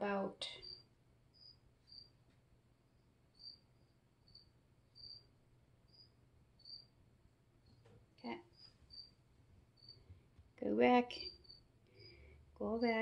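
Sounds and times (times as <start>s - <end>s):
cricket chirping: 0.6s - 2.2s, 2.9s - 7.0s, 8.5s - 10.0s, 11.2s - 12.2s.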